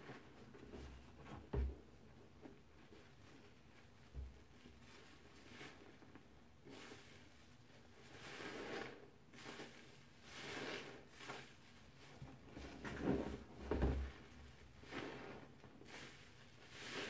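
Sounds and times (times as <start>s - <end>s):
soapy sponges squelching: 4.7s - 6.0s, 6.6s - 13.5s, 14.2s - 17.0s
hands sloshing in soapy water: 8.0s - 13.4s, 14.2s - 17.0s.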